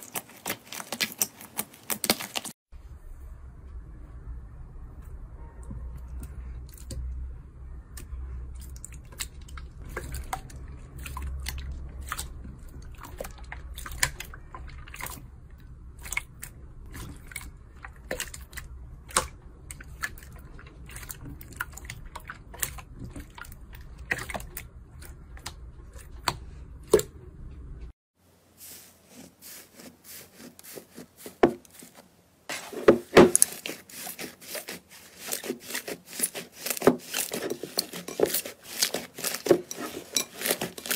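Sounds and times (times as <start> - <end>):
hands squishing slime: 0.0 - 2.5, 7.9 - 27.1, 33.2 - 40.9
thick slime squelching: 0.0 - 2.6, 7.9 - 27.2, 28.6 - 40.9
low hum: 2.7 - 28.0.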